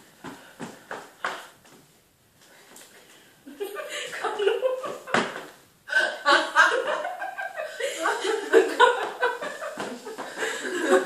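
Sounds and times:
people laughing: 0:03.5 - 0:05.2, 0:06.1 - 0:11.0.

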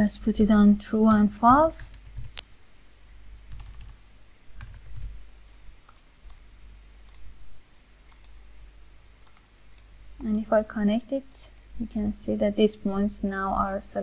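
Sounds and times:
mouse clicks: 0:08.0 - 0:08.4.

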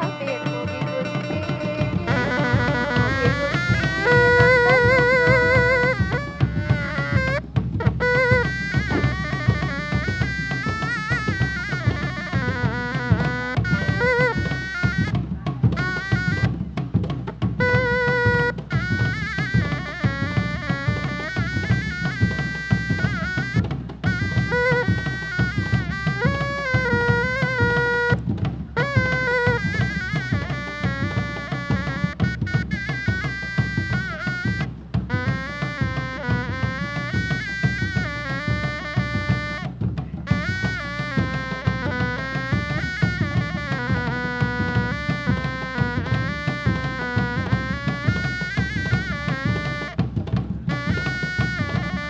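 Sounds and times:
hand-beaten drums: 0:00.0 - 0:52.0
reedy wind instrument melody: 0:00.0 - 0:52.0.

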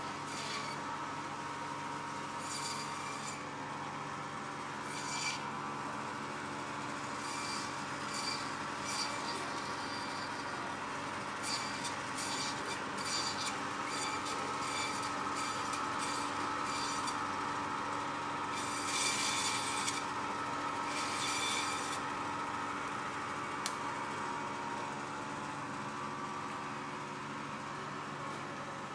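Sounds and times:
band saw humming: 0:00.0 - 0:28.6
saw blade rasping through bone: 0:00.3 - 0:00.8, 0:07.2 - 0:10.6, 0:11.4 - 0:17.2, 0:18.5 - 0:20.1, 0:20.8 - 0:22.0.

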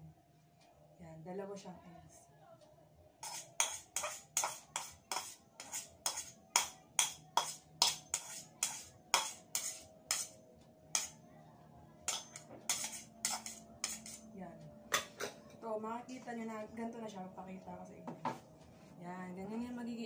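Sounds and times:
spatula scraping a bowl: 0:03.2 - 0:11.2, 0:12.1 - 0:14.3.

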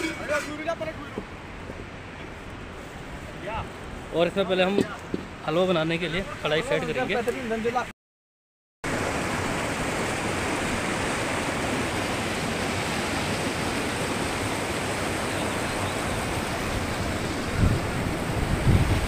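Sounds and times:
stream rushing over boulders: 0:08.9 - 0:19.0.

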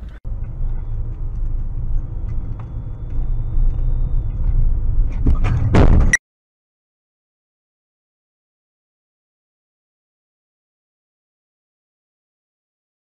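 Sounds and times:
road and engine rumble: 0:00.0 - 0:06.2
loud sudden burst of noise: 0:05.5 - 0:06.2.

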